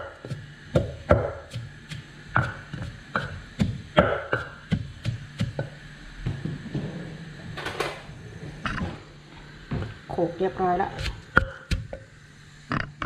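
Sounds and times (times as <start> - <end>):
pestle pounding in a mortar: 0.2 - 5.8, 11.0 - 12.0.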